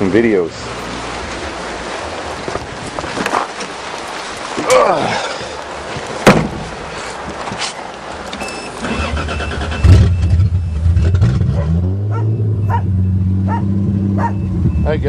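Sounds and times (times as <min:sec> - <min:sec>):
car starter cranking: 0:08.3 - 0:11.3.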